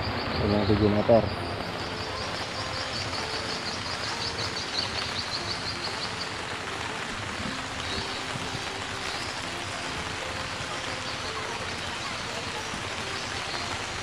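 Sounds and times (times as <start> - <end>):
bird chirping rapidly: 0.0 - 6.4
outdoor background noise: 0.0 - 14.0.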